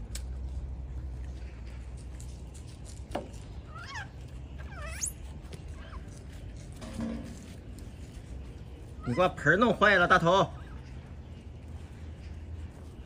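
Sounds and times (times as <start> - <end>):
monkey falling chirp: 3.7 - 5.2
monkey high wavering calls: 3.7 - 6.1.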